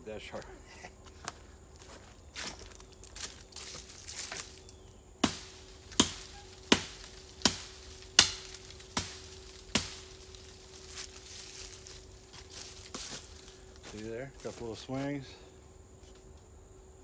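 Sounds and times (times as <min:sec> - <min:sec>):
hatchet chopping stick: 0:05.9 - 0:09.2.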